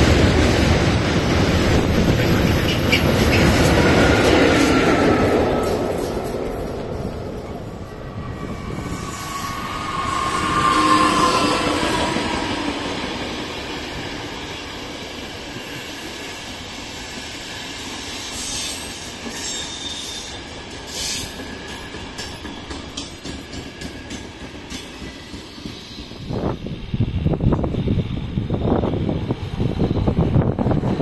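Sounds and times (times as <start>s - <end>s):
rumble of wheels on rail: 0.0s - 31.0s
train whine: 0.0s - 31.0s
high wheel squeal: 1.6s - 5.8s, 7.6s - 23.6s.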